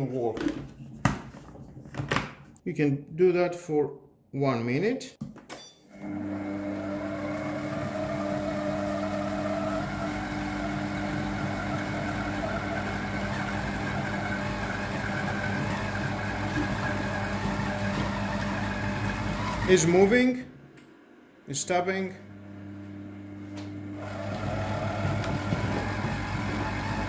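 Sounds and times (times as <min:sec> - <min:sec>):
kitchen machine motor humming: 0:06.0 - 0:20.4, 0:21.5 - 0:27.0.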